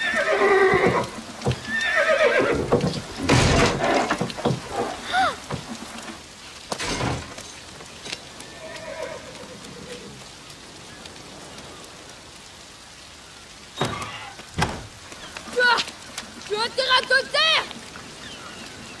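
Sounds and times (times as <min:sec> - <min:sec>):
steady rain: 0:00.0 - 0:19.0
dull thump: 0:02.7 - 0:04.7, 0:13.8 - 0:14.9.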